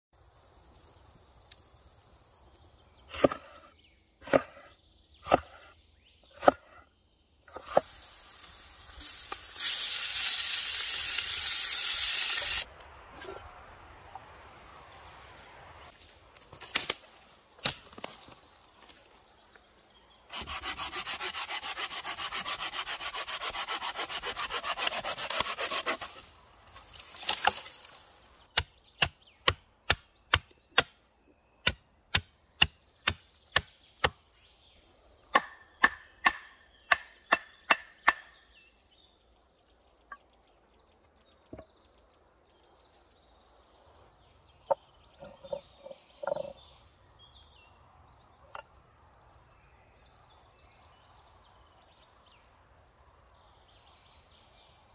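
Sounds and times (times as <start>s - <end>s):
saw cutting through branch: 20.3s - 26.3s.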